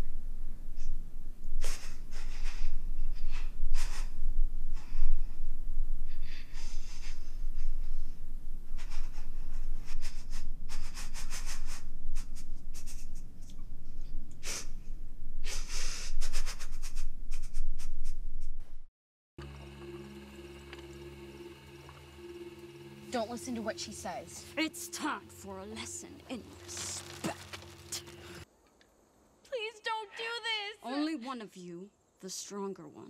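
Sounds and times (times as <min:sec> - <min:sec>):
sniffles: 0:08.8 - 0:13.2.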